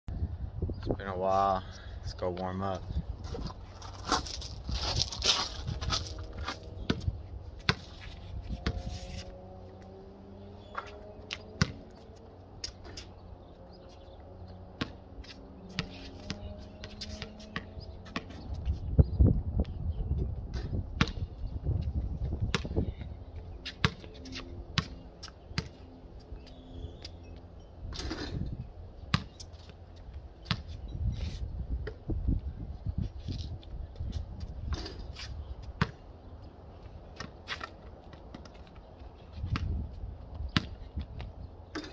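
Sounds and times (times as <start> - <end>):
basketball bouncing on concrete: 6.8 - 7.9, 10.8 - 11.9, 14.8 - 15.0, 15.7 - 18.5, 20.5 - 24.1, 24.7 - 25.8, 29.1 - 29.4, 30.4 - 30.7, 35.8 - 36.0, 40.5 - 41.9.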